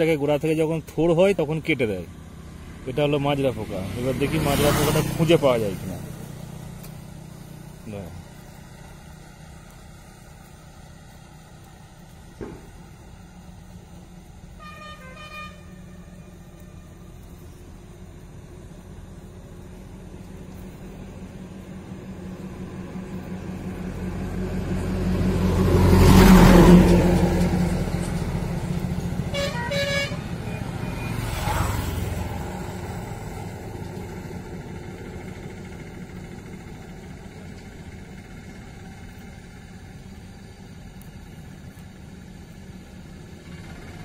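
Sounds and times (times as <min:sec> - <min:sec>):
vehicle passing by: 0:00.0 - 0:14.6, 0:15.6 - 0:41.8
short horn beeps: 0:14.6 - 0:16.2, 0:29.3 - 0:31.2.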